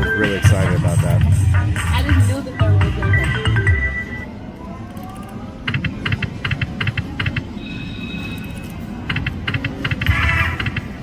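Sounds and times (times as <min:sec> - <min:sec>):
slot machine clicking ticks: 0:09.0 - 0:11.0.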